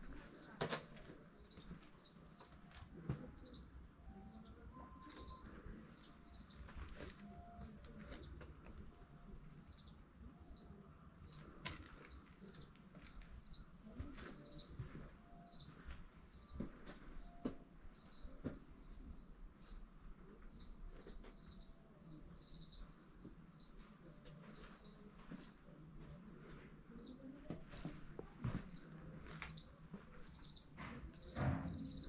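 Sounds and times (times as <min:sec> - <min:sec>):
cricket chirping: 0:30.3 - 0:32.0.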